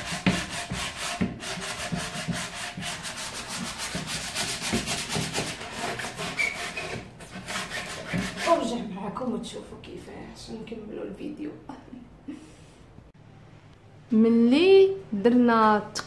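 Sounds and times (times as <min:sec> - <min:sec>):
sanding block scraping wood: 0:00.0 - 0:08.8.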